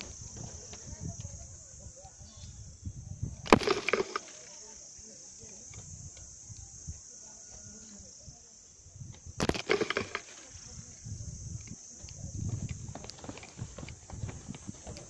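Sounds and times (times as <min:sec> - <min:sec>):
high-pitched insect chirring: 0:00.0 - 0:14.2
thuds of footsteps on stone steps: 0:12.1 - 0:15.0.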